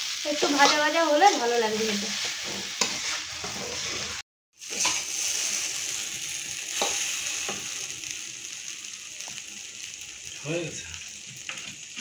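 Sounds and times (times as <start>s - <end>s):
spatula scraping a wok: 0.0s - 8.2s
noodles sizzling in a wok: 0.0s - 12.0s.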